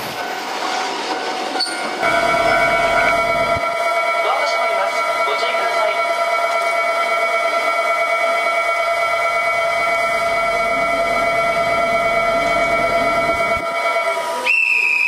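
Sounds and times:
electric railcar whine: 0.0s - 15.0s.

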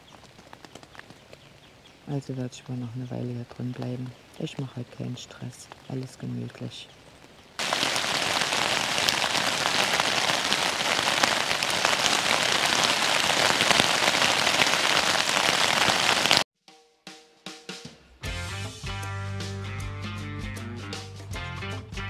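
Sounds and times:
heavy rain: 7.2s - 16.4s.

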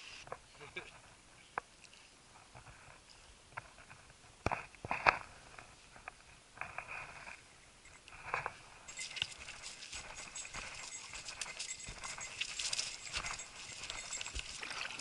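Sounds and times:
footsteps crunching dry leaves: 8.9s - 15.0s.

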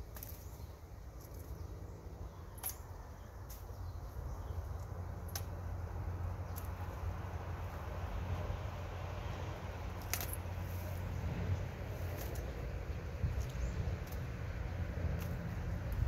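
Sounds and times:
steady low rumble: 0.0s - 16.0s
sharp clicks: 5.2s - 5.6s.

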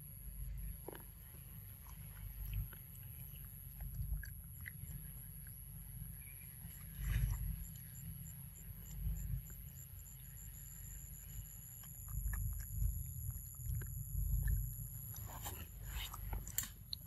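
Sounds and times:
low steady rumble: 0.0s - 17.0s
monkey rustling near microphone: 15.2s - 16.6s.

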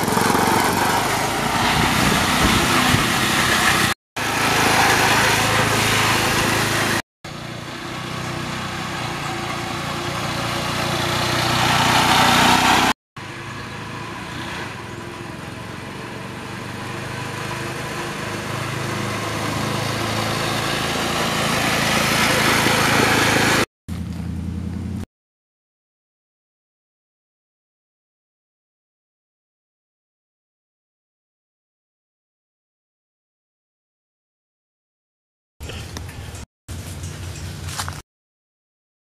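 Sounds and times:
garden tractor engine running: 0.0s - 25.0s, 35.6s - 38.0s.

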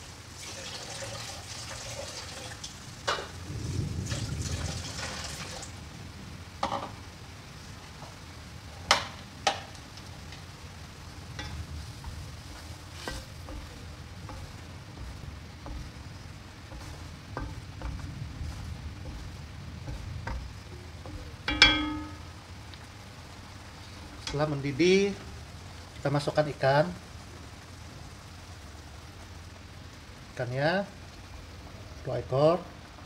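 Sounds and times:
sauce bubbling and sizzling: 0.0s - 33.0s
wooden spatula stirring: 11.3s - 22.3s.

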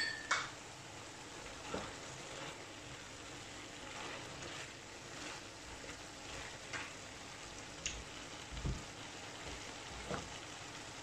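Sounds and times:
food sizzling in a pan: 0.0s - 11.0s
spatula knocking and scraping pan: 1.6s - 2.6s.

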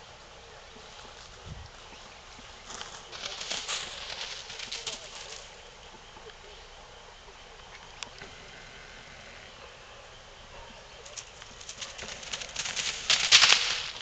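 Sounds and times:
straw crunching underfoot: 0.9s - 5.5s, 11.4s - 14.0s.

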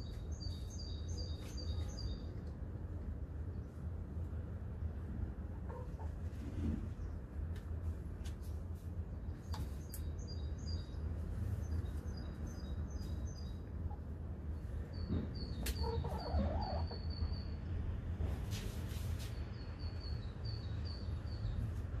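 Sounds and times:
chickens calling: 15.5s - 17.3s.

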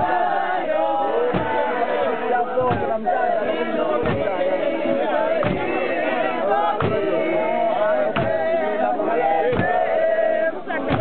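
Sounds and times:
women singing in unison: 0.0s - 11.0s
hand claps: 8.2s - 8.4s.

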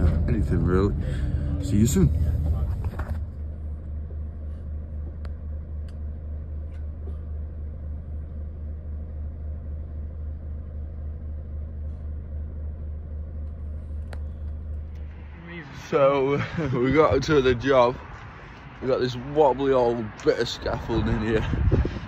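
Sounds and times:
van engine idling: 0.0s - 22.0s.

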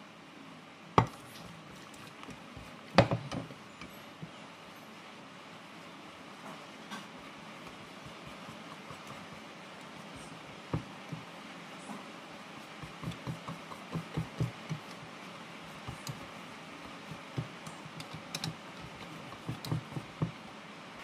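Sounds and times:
whisk clicking against plastic bowl: 7.7s - 11.3s, 12.7s - 15.0s, 15.7s - 20.4s.

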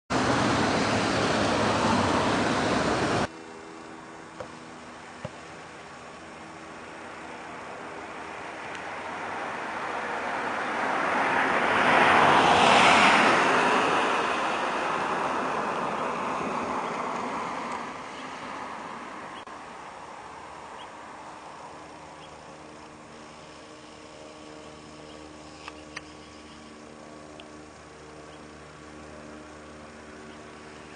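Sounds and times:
car passing by: 0.1s - 3.3s, 7.3s - 26.9s.

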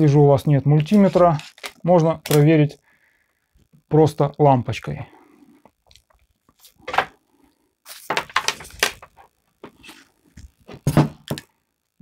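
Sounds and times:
objects knocking on tabletop: 10.7s - 11.5s.

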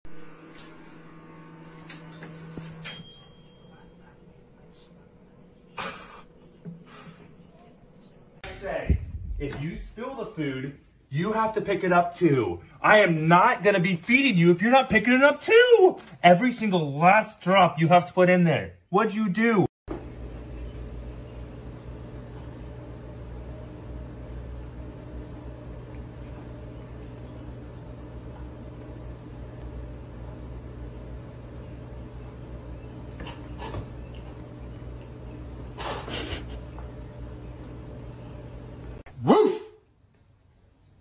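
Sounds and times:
low electrical hum: 19.4s - 39.0s
dog barking: 39.2s - 39.8s.

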